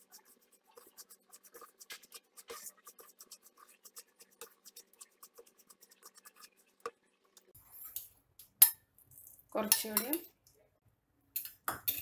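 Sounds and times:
wooden spatula scraping pan: 0:00.0 - 0:06.9.

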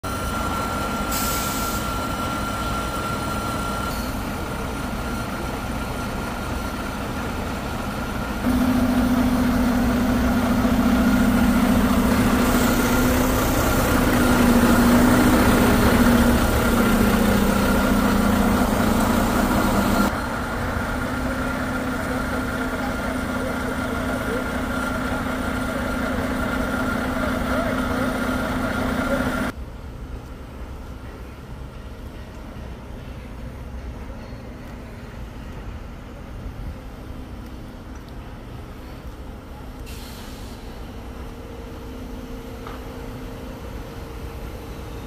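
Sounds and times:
diesel engine running: 0:00.1 - 0:29.6
loud humming drone: 0:00.1 - 0:29.6
high whine: 0:08.4 - 0:29.5.

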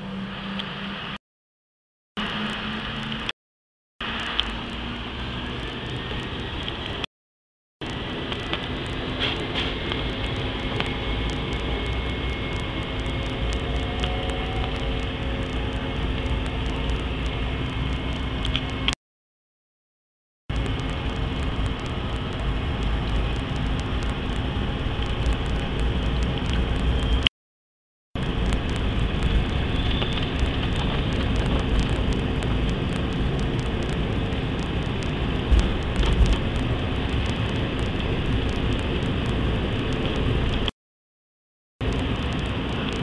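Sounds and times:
airliner engine and cabin noise: 0:07.8 - 0:19.0, 0:20.5 - 0:27.3, 0:28.2 - 0:40.7, 0:41.8 - 0:43.0.

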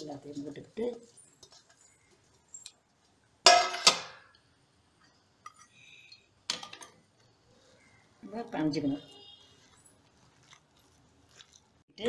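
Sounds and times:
metal vessels clanking: 0:03.5 - 0:04.3.

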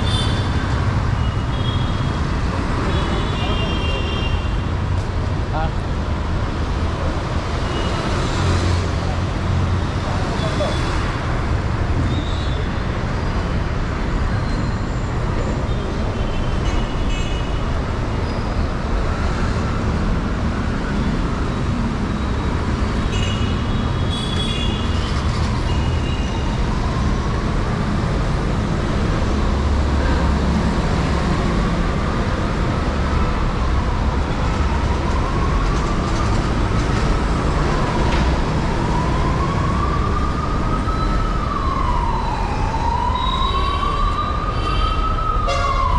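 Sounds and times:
city road traffic rumble: 0:00.0 - 0:45.9
emergency siren wailing: 0:25.6 - 0:45.9.

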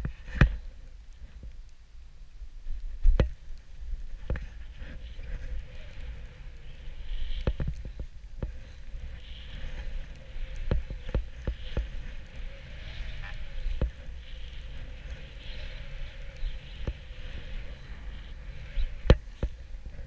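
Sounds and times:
wind rumble on microphone: 0:00.0 - 0:20.0
snowboard scraping over snow: 0:04.2 - 0:20.0.

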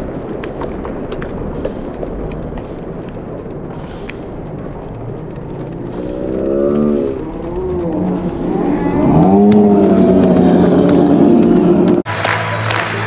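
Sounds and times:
crowd cheering and shouting: 0:06.7 - 0:13.0.

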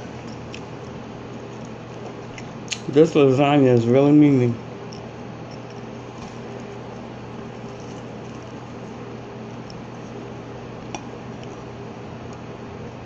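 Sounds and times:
steady low hum: 0:00.0 - 0:13.0
person chewing food: 0:00.1 - 0:02.8, 0:04.8 - 0:11.7.

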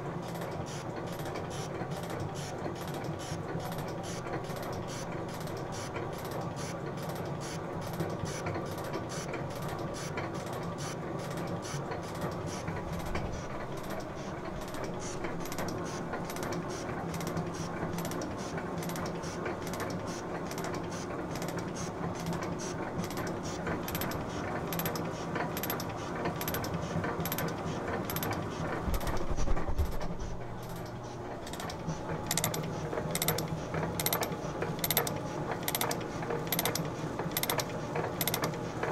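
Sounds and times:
metal shaper running: 0:08.7 - 0:38.7
sharp mechanical click: 0:13.0 - 0:17.4, 0:18.0 - 0:21.6, 0:23.0 - 0:23.3, 0:23.9 - 0:38.6.

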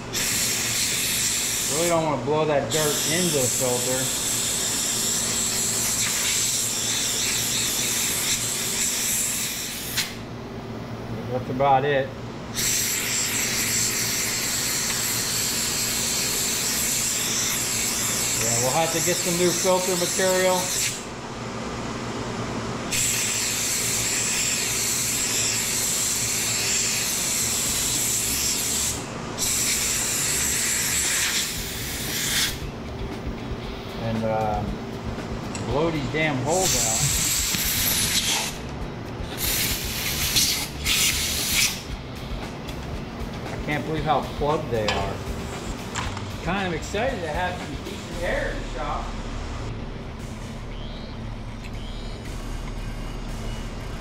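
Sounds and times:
compressed air hissing: 0:00.0 - 0:02.1, 0:02.7 - 0:10.2, 0:12.5 - 0:21.1, 0:22.9 - 0:32.6, 0:36.5 - 0:38.6, 0:39.3 - 0:42.6
low steady hum: 0:32.6 - 0:54.0.

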